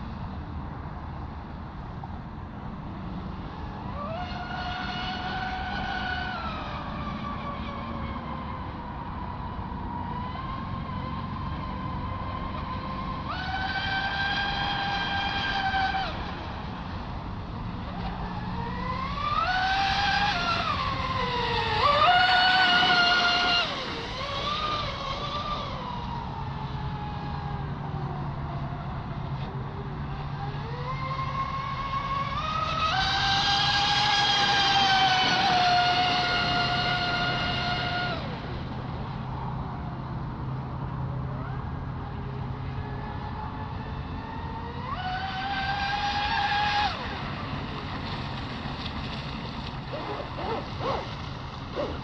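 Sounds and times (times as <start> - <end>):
electric motor whining: 51.7 - 52.0.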